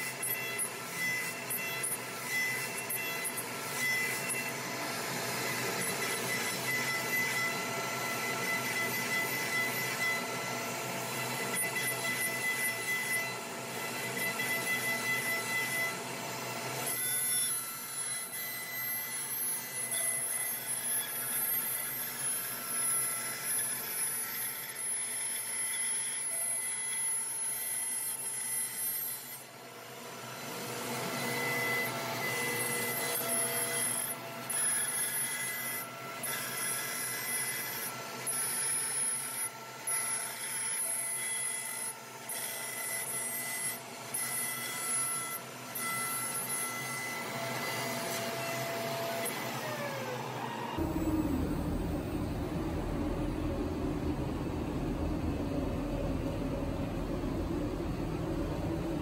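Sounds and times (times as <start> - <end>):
router spindle machining wood: 0.0 - 59.0
dust extraction: 49.4 - 59.0.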